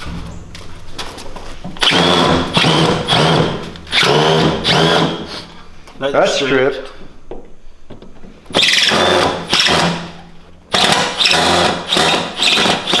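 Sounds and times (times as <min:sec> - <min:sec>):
cordless drill whining: 0:01.8 - 0:05.3, 0:08.5 - 0:10.0, 0:10.7 - 0:13.0.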